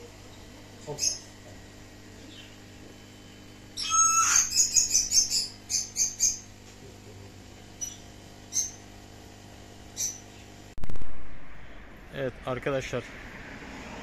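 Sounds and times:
small bird chirping: 0.2s - 1.3s, 2.2s - 2.6s, 3.8s - 6.5s, 7.8s - 8.9s, 9.9s - 10.6s.

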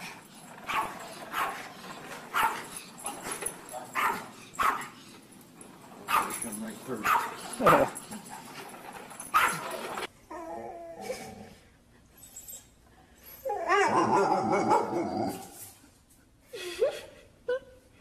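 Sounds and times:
dog barking: 0.7s - 1.6s, 2.3s - 2.7s, 4.0s - 4.9s, 6.1s - 6.4s, 7.0s - 8.0s, 9.3s - 9.7s
dog whining and whimpering: 9.2s - 11.6s, 12.2s - 15.6s.

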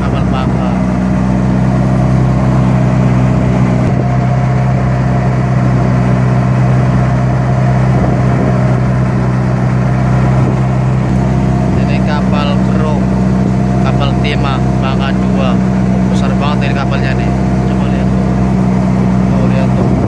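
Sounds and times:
boat engine droning: 0.0s - 20.0s.

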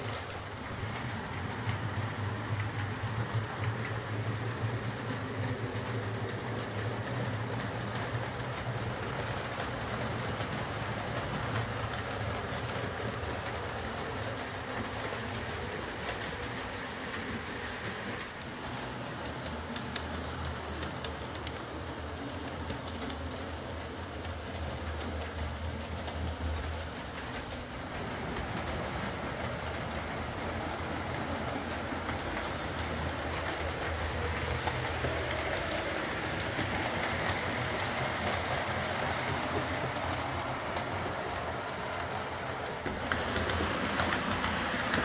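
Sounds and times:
wheel noise on rails: 0.0s - 45.0s
model train motor hum: 27.9s - 45.0s.

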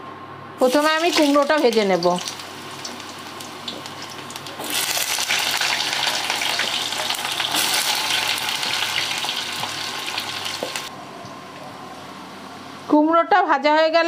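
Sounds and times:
pumpkin sizzling in hot oil: 0.6s - 10.9s.

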